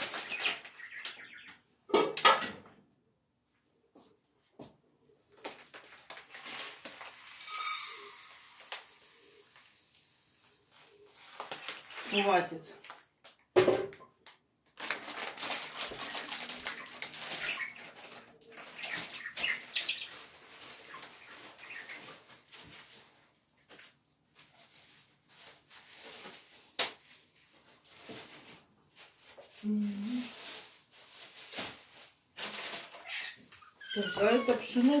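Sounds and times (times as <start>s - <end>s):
plastic packet crinkling: 5.4s - 9.8s, 10.4s - 13.0s, 14.7s - 23.0s, 29.0s - 33.2s.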